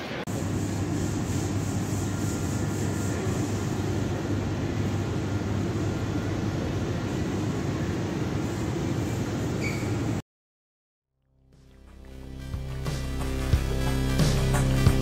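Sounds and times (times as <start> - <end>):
low rumbling supermarket background: 0.0 - 10.2.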